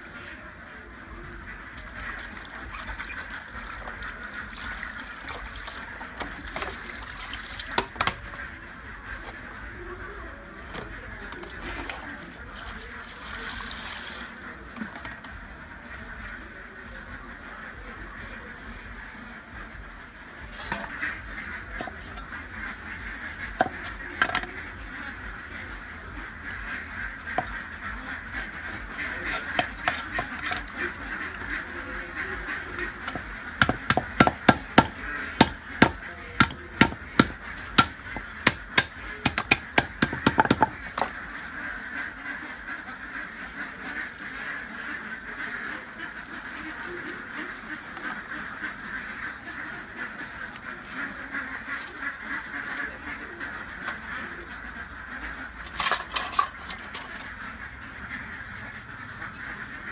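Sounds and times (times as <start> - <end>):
cleaver chopping on wooden board: 33.1 - 40.8.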